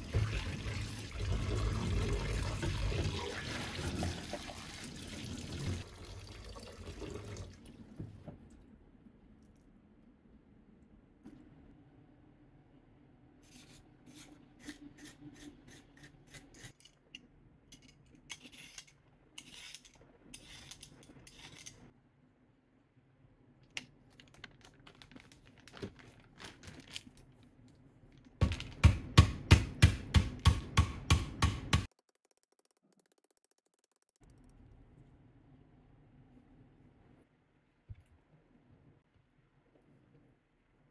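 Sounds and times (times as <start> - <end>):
plastic bag crinkling: 24.2 - 27.5.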